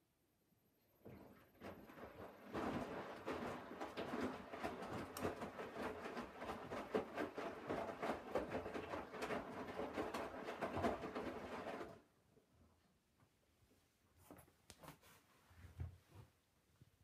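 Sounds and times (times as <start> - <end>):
washing machine tumbling wet laundry: 0.9 - 12.1.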